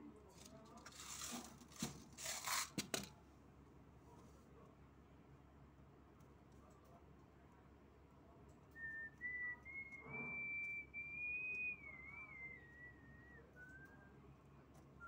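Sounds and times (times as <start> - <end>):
woman whistling softly: 8.8 - 14.2.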